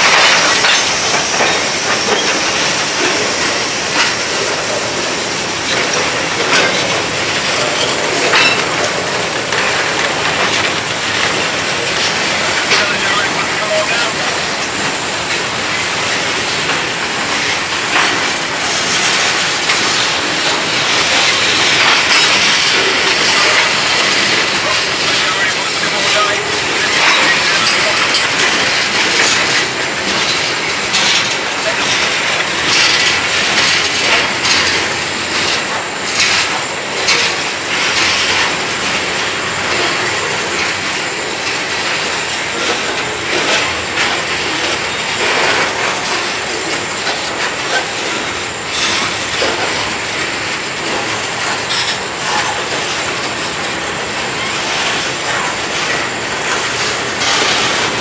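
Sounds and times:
train wheels clattering on rails: 0.0 - 58.0.

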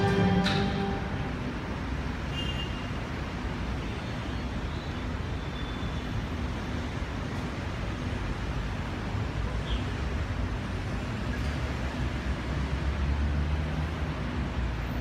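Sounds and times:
recorded anthem chord: 0.0 - 1.6
outdoor background noise: 0.0 - 15.0.

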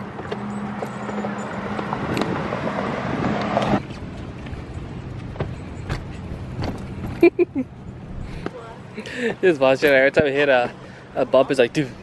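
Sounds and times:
stroller wheels rolling on concrete: 0.0 - 7.4.

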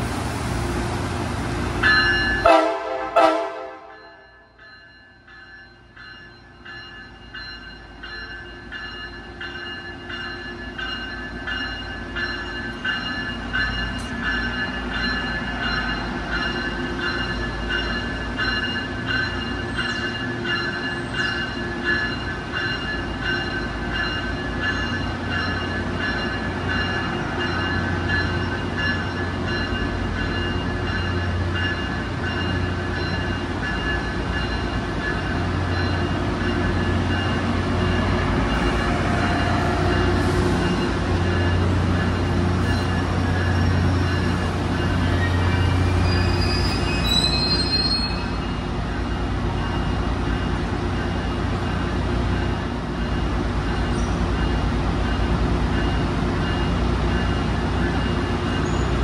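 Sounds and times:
diesel train passing: 0.0 - 59.0.

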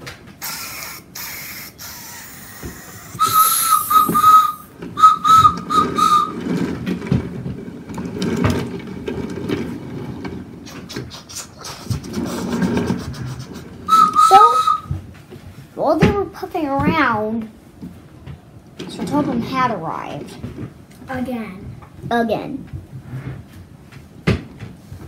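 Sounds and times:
wooden toy trains rattling: 0.0 - 15.0
mouth steam hiss: 0.4 - 6.3
whistled train whistle: 2.9 - 6.4, 13.9 - 15.0.

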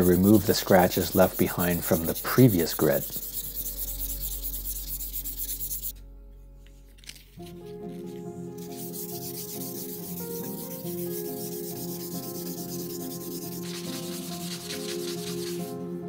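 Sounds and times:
sandpaper scrubbing metal blade: 0.0 - 5.9, 8.6 - 15.7
background music: 0.0 - 16.0.

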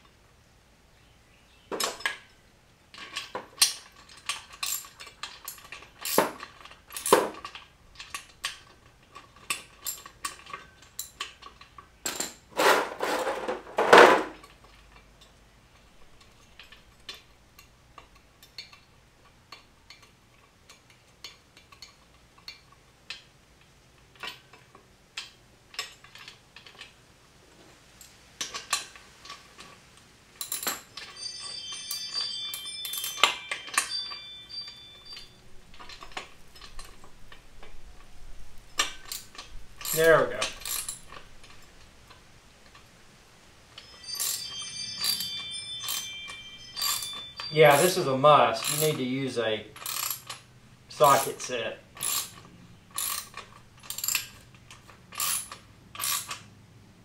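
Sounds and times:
metal clinking and knocking: 1.7 - 2.3, 2.9 - 15.0, 30.4 - 42.9, 43.7 - 56.4
clattering metal: 3.0 - 14.6, 43.7 - 55.6.

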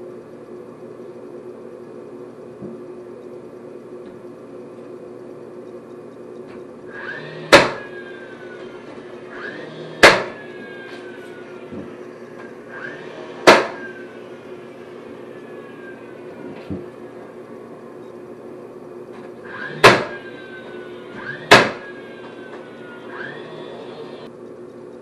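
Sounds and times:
nailer motor whine: 6.8 - 24.3
nailer firing: 7.0 - 8.0, 9.6 - 10.5, 12.8 - 14.0, 19.5 - 20.3, 21.1 - 22.0.

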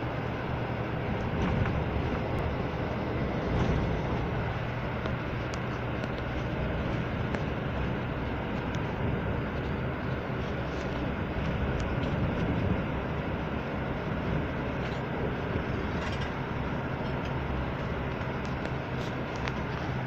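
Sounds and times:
vehicle cabin rumble: 0.0 - 20.0
faint clicks and rattles: 17.0 - 20.0.

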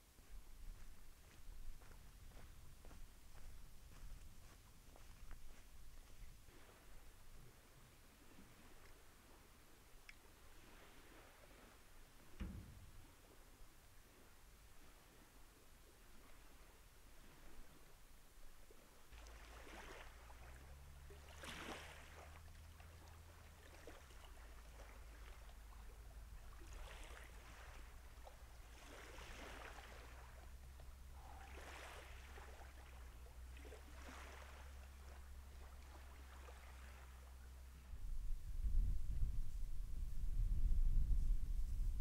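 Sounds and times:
small waves lapping on shore: 0.2 - 37.9
low steady rumble: 19.0 - 42.0.

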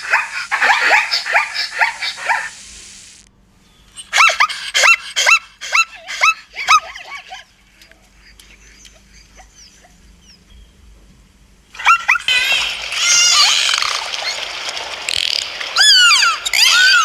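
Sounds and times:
zebra yelping barks: 0.0 - 2.6, 4.0 - 7.5.

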